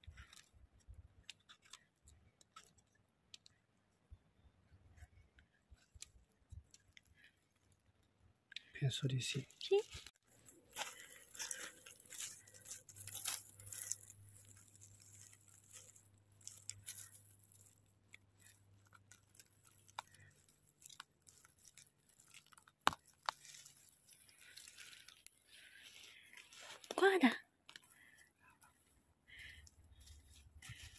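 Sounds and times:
dry leaves rustling and crackling: 10.3s - 26.9s, 29.4s - 30.9s.

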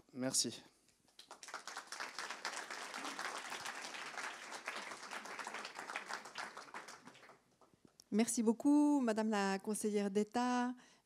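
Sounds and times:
audience applauding: 1.1s - 7.7s.

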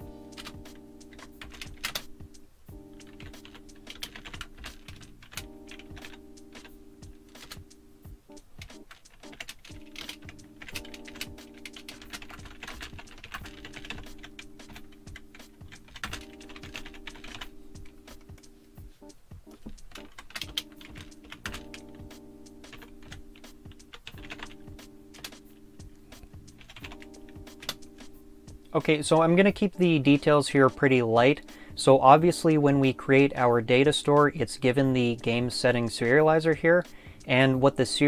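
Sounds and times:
keyboard typing: 0.1s - 18.6s, 19.5s - 28.8s.

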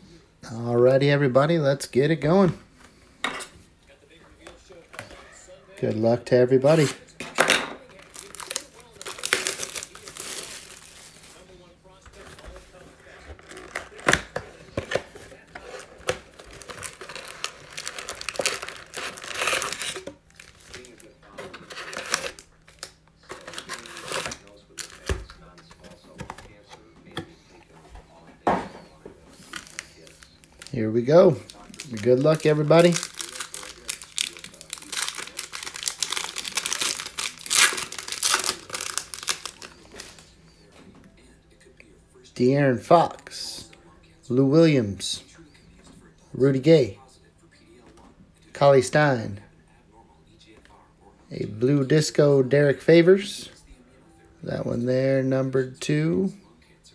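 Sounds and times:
wrapping being torn: 7.9s - 11.4s, 13.2s - 25.4s, 31.4s - 40.3s
foil packs crinkling: 7.9s - 26.6s, 29.3s - 40.3s.

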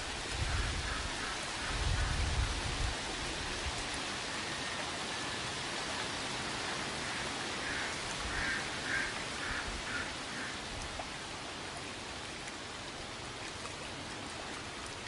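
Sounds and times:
wind gusts on microphone: 0.0s - 4.2s
stream water rushing: 0.0s - 15.0s.

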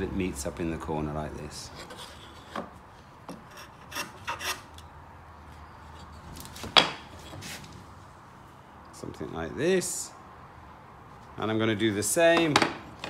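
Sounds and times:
wood scraping against wood: 1.5s - 4.8s, 5.8s - 7.8s.

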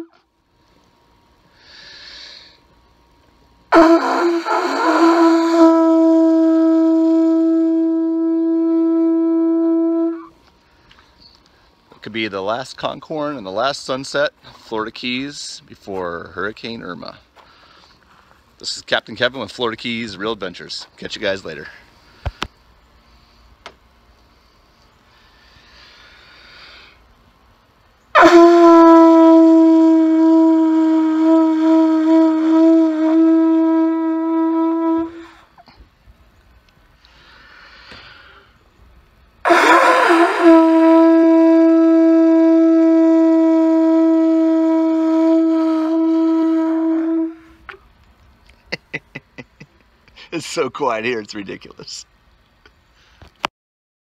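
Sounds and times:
conch shell horn blown: 0.0s - 0.3s, 3.7s - 10.4s, 28.1s - 35.8s, 39.4s - 47.8s.

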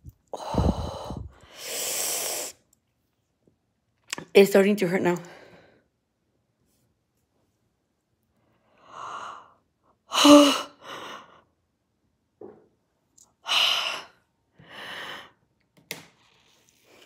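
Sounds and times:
woman gasping: 0.3s - 2.5s
woman's pained hissing breaths: 0.3s - 2.6s.

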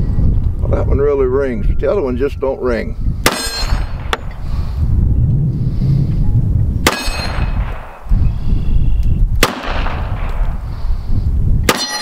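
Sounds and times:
pistol shots: 3.2s - 4.2s, 6.8s - 8.0s, 9.4s - 10.4s, 11.7s - 12.0s
steel target ringing: 3.3s - 4.3s, 6.8s - 7.6s, 11.7s - 12.0s.

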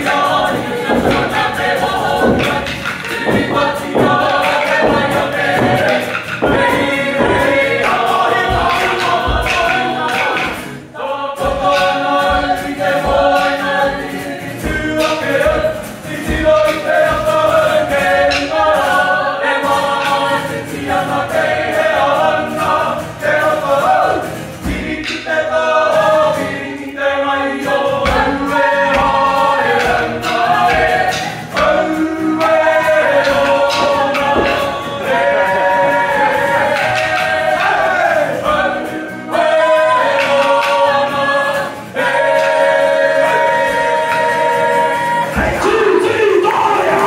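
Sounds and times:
low knocks beat: 0.0s - 10.6s, 11.4s - 18.9s, 28.0s - 38.7s
group singing in harmony: 0.0s - 47.0s.

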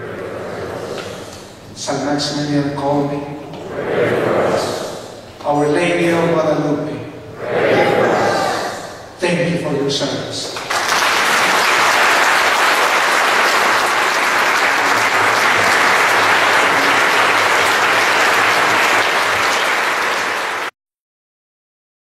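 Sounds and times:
audience applauding: 10.4s - 20.8s.

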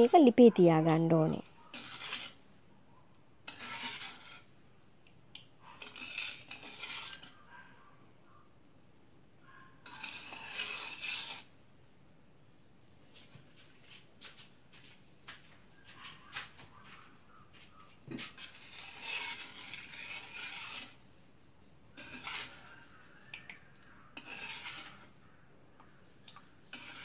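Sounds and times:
spoon scraping a pan: 0.0s - 2.4s, 3.4s - 4.6s, 5.8s - 7.5s, 9.8s - 11.5s, 18.0s - 21.1s, 21.9s - 27.0s.

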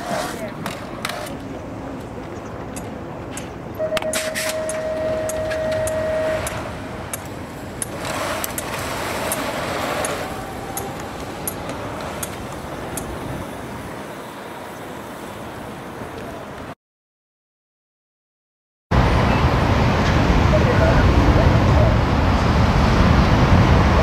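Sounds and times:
outdoor race noise: 0.0s - 16.8s
long electronic beep: 3.8s - 6.6s.

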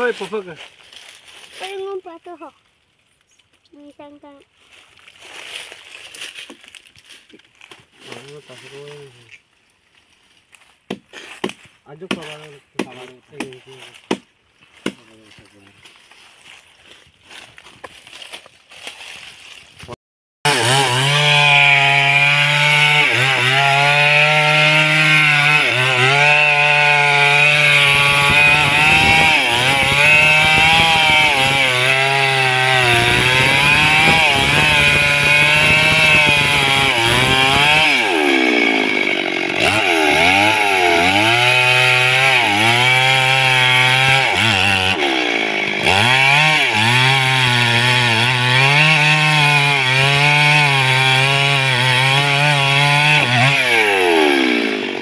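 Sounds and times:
chainsaw cutting wood: 10.8s - 15.2s, 19.8s - 55.0s.

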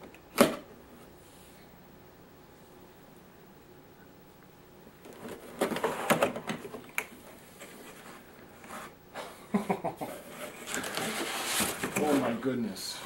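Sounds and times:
cardboard rustling: 10.1s - 12.4s.

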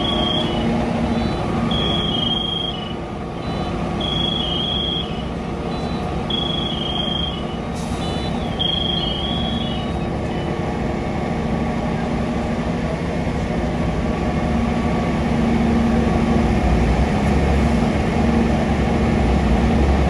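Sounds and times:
vehicle warning alarm beeping: 0.0s - 10.4s
diesel engines idling: 0.0s - 20.0s.

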